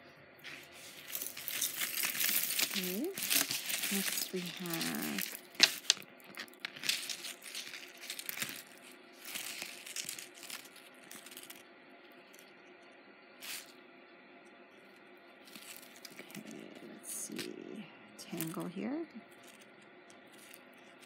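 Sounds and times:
plastic bag crinkling: 0.4 - 11.6, 15.4 - 17.4, 18.2 - 21.0
necklace chains handled: 0.8 - 11.6.

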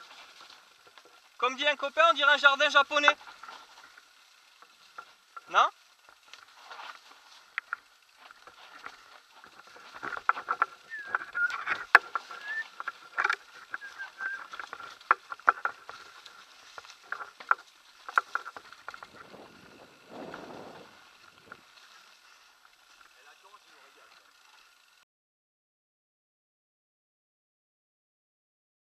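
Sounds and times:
bike rattling and knocking: 0.0 - 25.0
tyres running through dry leaves: 0.0 - 25.0.

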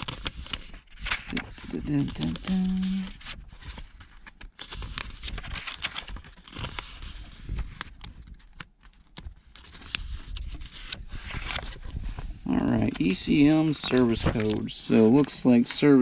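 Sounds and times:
paper pages rustling: 0.0 - 15.8.

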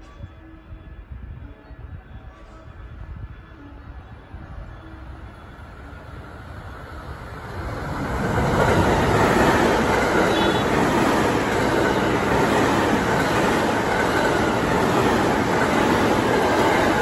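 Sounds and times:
electric train passing: 0.4 - 17.0.

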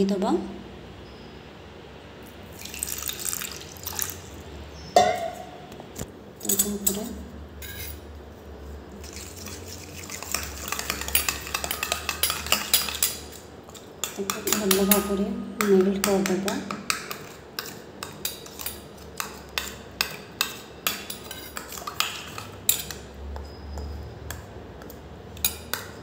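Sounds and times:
water pouring into steel bowl: 2.5 - 4.3
spoon stirring in steel bowl: 6.4 - 26.0.

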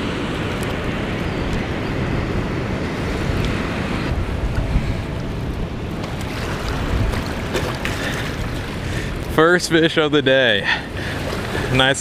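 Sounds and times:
wind buffeting microphone: 0.0 - 12.0
fast water rushing: 2.6 - 12.0.

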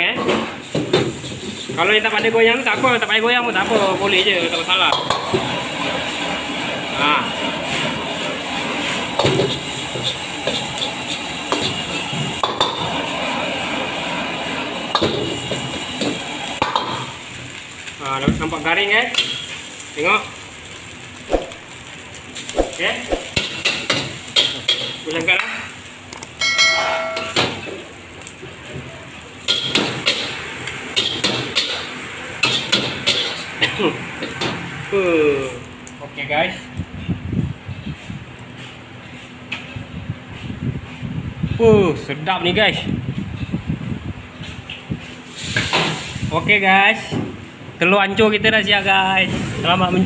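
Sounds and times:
egg sizzling in a wok: 0.6 - 28.6, 29.2 - 35.3
ladle knock ringing on wok: 26.4 - 27.4.

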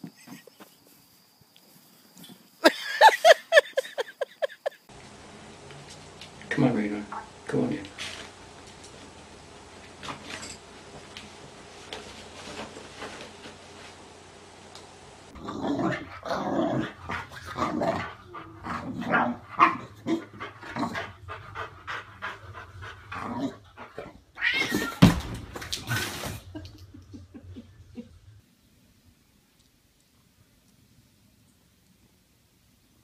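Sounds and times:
dog barking and growling: 15.4 - 24.2.

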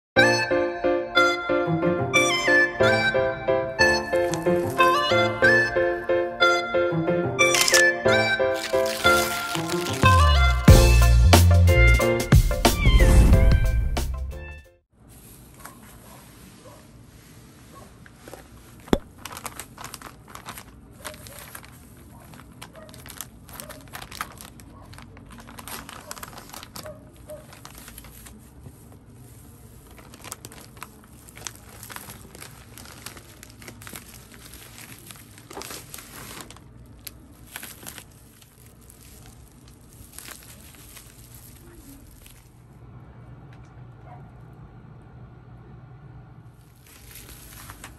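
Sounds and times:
bubble wrap rustling: 3.9 - 5.5, 7.4 - 10.7, 15.0 - 42.6, 46.6 - 47.9
plastic mailer bag crinkling: 4.2 - 5.4, 7.5 - 7.9, 8.5 - 10.6, 18.3 - 42.6, 46.6 - 47.9.

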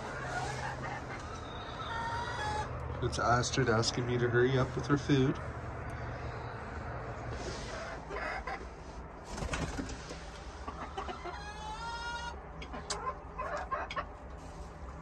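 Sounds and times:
chickens clucking: 0.0 - 15.0.

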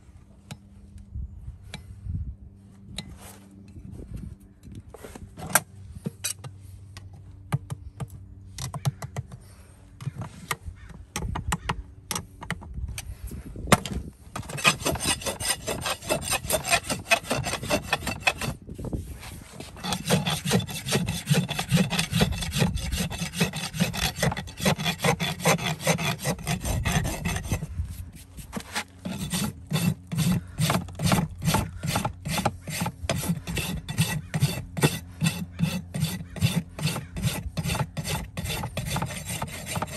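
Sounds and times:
rasp scraping hoof: 13.8 - 39.9.

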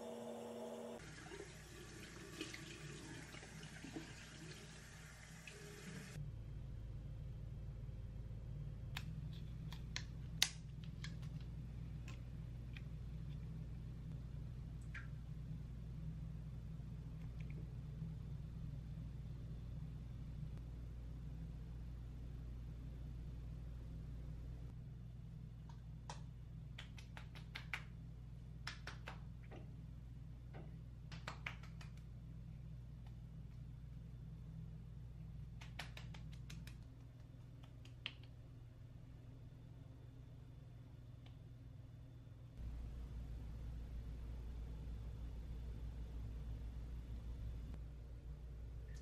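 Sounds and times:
low hum: 6.0 - 26.7, 38.5 - 49.0
hands patting face: 26.1 - 28.0, 28.6 - 29.6, 31.0 - 32.1, 35.5 - 38.4.

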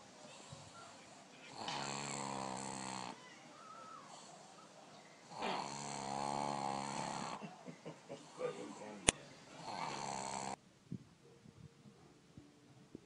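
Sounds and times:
dog snoring: 0.3 - 3.3, 4.1 - 7.4, 9.6 - 10.6.

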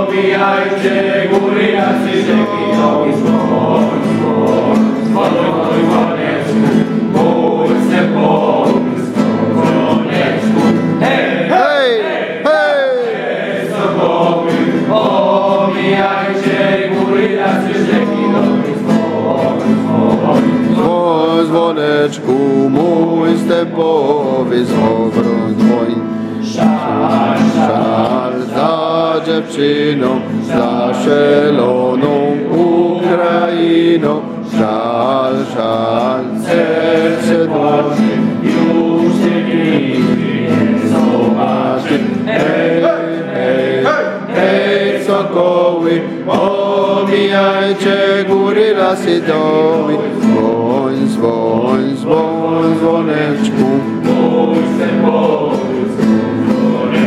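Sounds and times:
group of people singing: 0.0 - 57.0.

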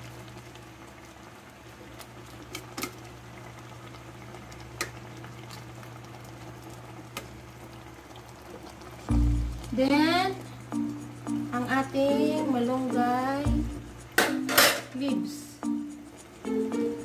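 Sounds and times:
stew simmering in a pot: 0.0 - 14.2
low hum: 9.1 - 14.2.

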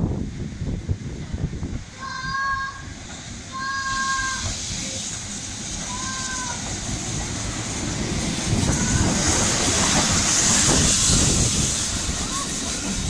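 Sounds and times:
steam locomotive running and hissing: 0.0 - 13.0
two-tone steam whistle: 3.5 - 5.0, 5.8 - 6.7.

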